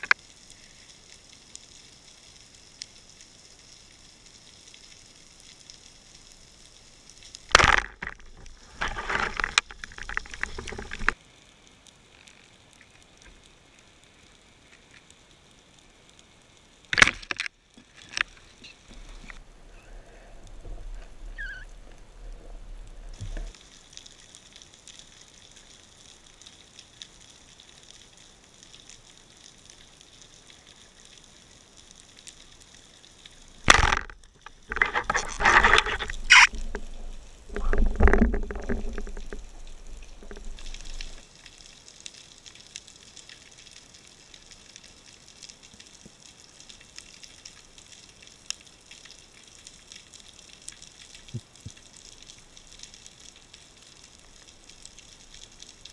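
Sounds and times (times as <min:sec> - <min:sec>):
faint underwater hiss: 0:00.0 - 0:07.6, 0:17.7 - 0:33.7
faint ticks: 0:00.0 - 0:16.6, 0:20.4 - 0:55.9
bursty water noise: 0:00.0 - 0:55.9.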